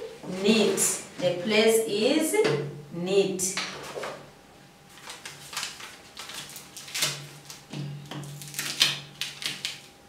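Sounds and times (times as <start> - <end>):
paper rustling and crinkling: 3.7 - 4.2, 4.9 - 9.9.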